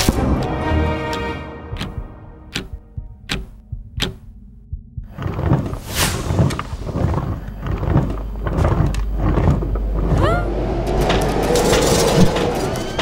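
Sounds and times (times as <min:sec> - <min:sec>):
grandfather clock ticking: 0:00.4 - 0:05.5.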